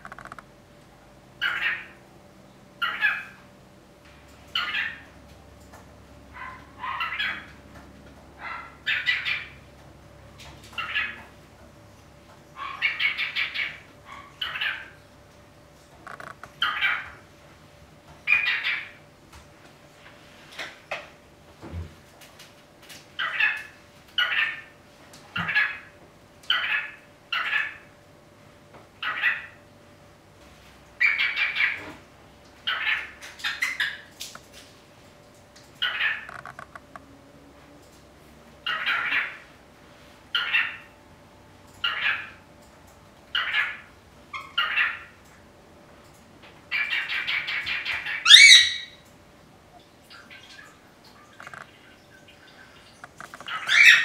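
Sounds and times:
cockatiel chirping and chattering: 0:44.4 - 0:45.1, 0:53.0 - 0:54.0
cockatiel chirping: 0:53.4 - 0:54.0.

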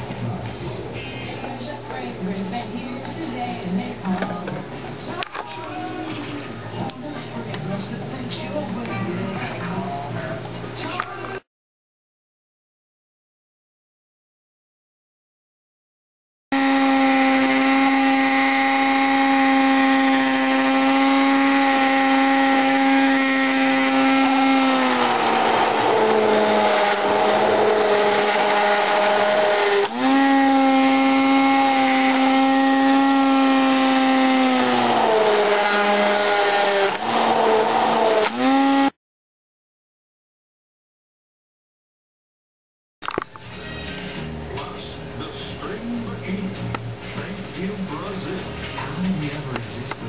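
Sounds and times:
electric blender motor whine: 0:16.5 - 0:39.0.

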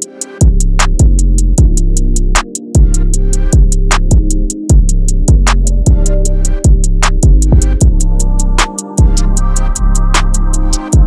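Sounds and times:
hi-hat ticks: 0:00.0 - 0:11.0
deep bass kicks: 0:00.4 - 0:01.8, 0:02.8 - 0:10.2
sustained bass line: 0:00.4 - 0:11.0.

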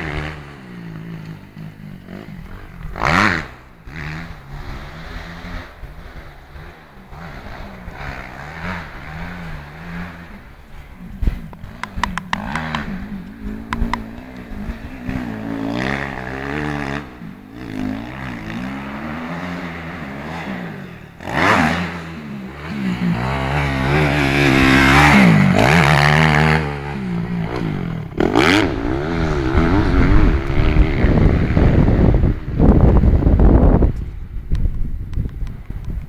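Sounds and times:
motocross bikes revving: 0:00.0 - 0:33.9.

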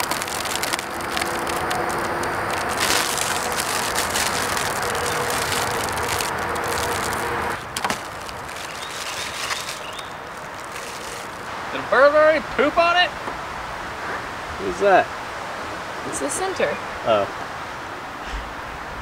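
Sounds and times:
plastic film crinkling: 0:00.0 - 0:11.5.

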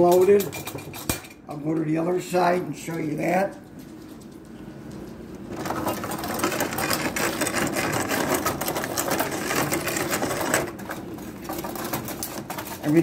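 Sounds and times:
table hockey rods rattling: 0:00.0 - 0:01.4, 0:05.5 - 0:13.0.

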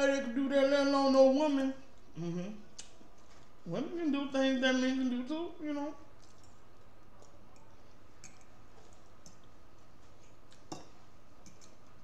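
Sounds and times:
faint chewing: 0:06.0 - 0:12.0.

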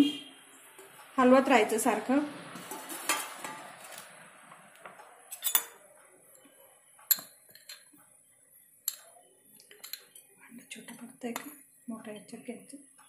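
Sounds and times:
spoon clinking against glass bowls: 0:05.3 - 0:05.8, 0:07.1 - 0:08.0, 0:08.8 - 0:10.2.

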